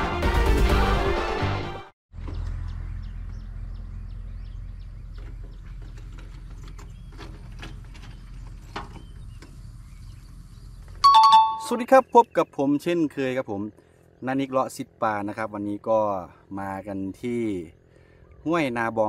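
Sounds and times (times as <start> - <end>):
short high chirps: 11.0 - 11.9.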